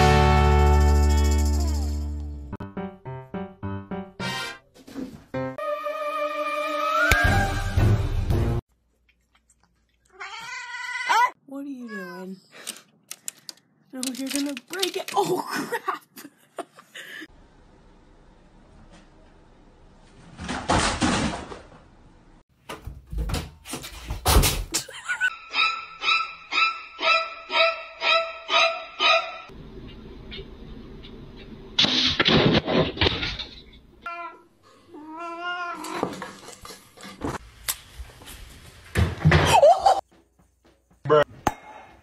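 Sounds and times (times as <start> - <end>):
cat meowing: 35.0 - 36.0.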